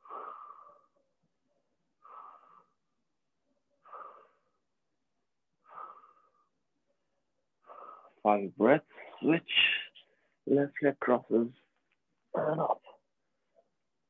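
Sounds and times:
person breathing deeply: 0.0s - 1.0s, 2.0s - 2.9s, 3.8s - 4.7s, 5.6s - 6.5s, 7.6s - 8.2s
short wheezy breaths: 5.6s - 6.5s.

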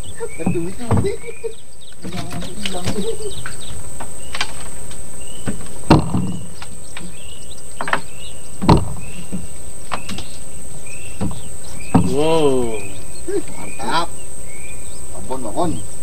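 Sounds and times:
high insect drone: 0.0s - 16.0s
steady outdoor hiss: 0.0s - 16.0s
fish thumping on wooden deck: 0.4s - 1.3s, 5.4s - 7.1s, 7.8s - 10.3s, 11.2s - 12.6s.

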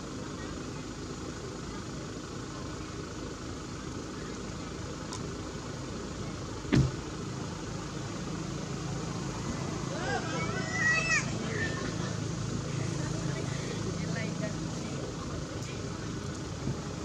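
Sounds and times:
sharp knock: 6.7s - 7.0s
steady low rumble: 11.3s - 17.0s.

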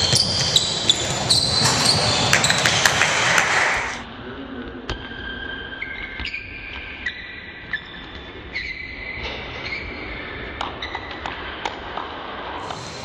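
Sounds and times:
ball knocking on rim and floor: 0.0s - 4.0s
shoes squeaking on floor: 0.0s - 4.0s.

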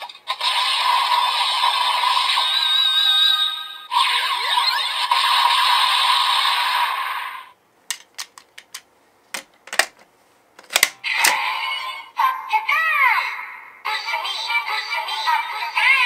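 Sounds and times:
toy electronic hissing sound effect: 3.9s - 7.5s
sharp plastic clicks: 7.9s - 10.0s, 10.6s - 11.4s.

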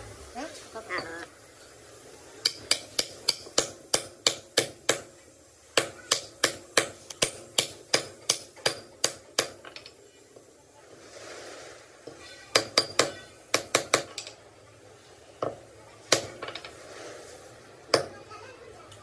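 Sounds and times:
hammer striking metal: 2.4s - 5.1s, 5.8s - 9.9s, 12.5s - 14.4s.

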